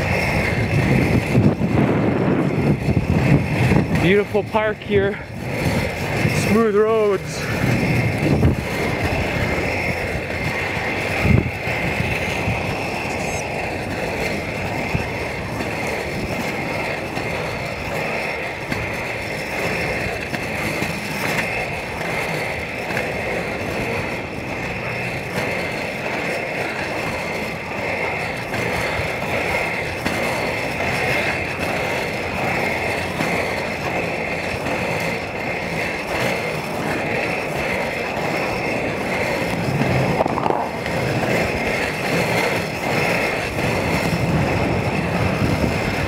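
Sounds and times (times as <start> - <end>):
skate wheels rolling on asphalt: 0.0 - 46.0.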